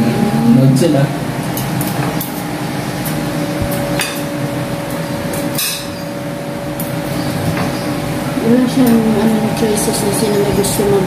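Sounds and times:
cutlery clinking on plates: 5.4s - 6.0s.

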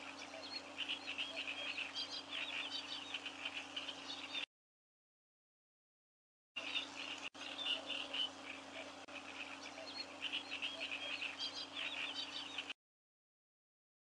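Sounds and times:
faint steady hum: 0.0s - 4.5s, 6.6s - 12.8s
high chirping calls: 0.0s - 4.5s, 6.6s - 12.8s.

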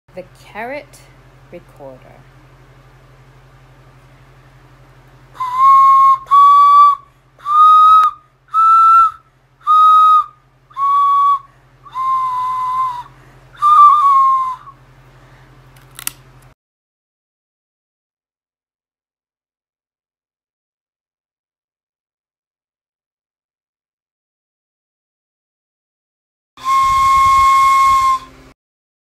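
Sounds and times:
carrot recorder whistle notes: 5.4s - 14.8s, 26.6s - 28.5s
sharp click: 15.8s - 16.6s.

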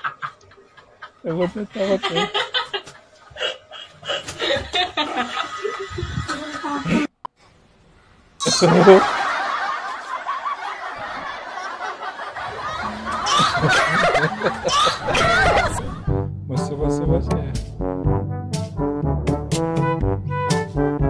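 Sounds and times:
adult laughing: 0.0s - 7.1s, 8.4s - 16.1s
brass music: 12.8s - 21.0s.

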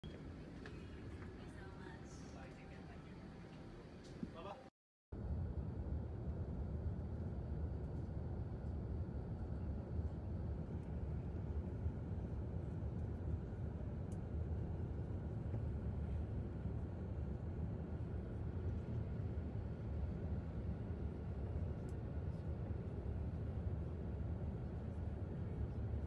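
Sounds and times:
aircraft cabin rumble: 5.2s - 26.0s.

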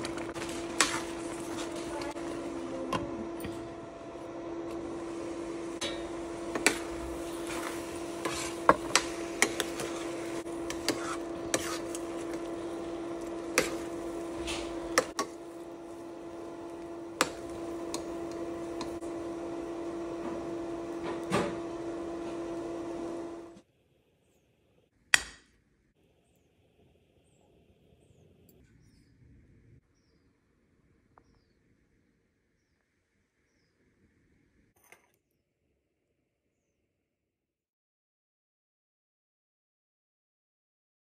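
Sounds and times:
steady electric hum: 0.0s - 23.6s
spatula scraping steel pan: 5.8s - 15.5s.

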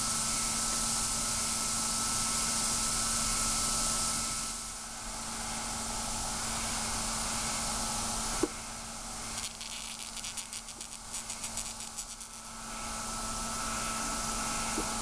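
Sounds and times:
steady hiss: 6.0s - 15.0s
spoon crackling solid argon: 9.3s - 12.5s.

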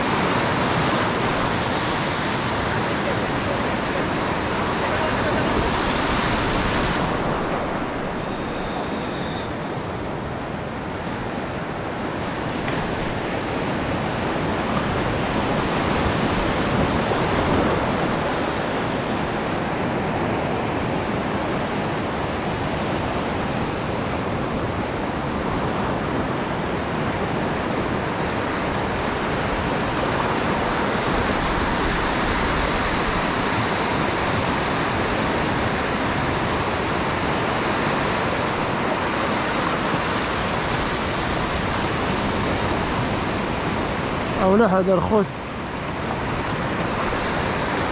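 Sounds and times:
surf breaking over shallows: 0.0s - 47.9s.

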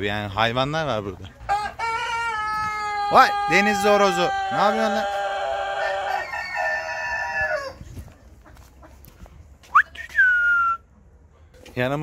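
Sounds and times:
rooster crowing: 1.5s - 7.8s.

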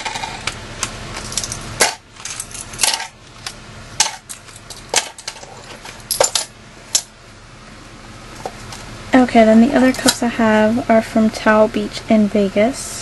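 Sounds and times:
metal keychains clinking: 1.2s - 3.1s.

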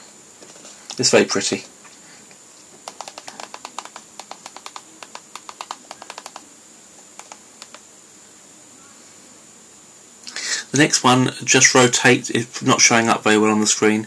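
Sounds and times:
computer keyboard typing: 2.8s - 7.8s.

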